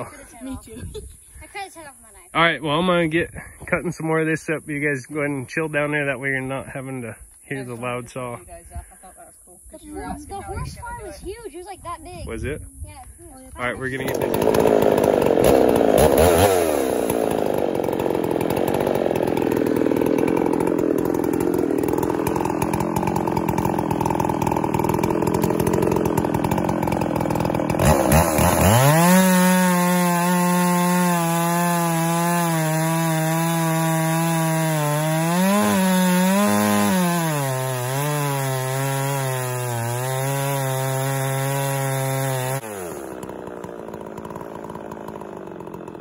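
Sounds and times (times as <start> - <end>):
chainsaw cutting log: 13.6 - 46.0.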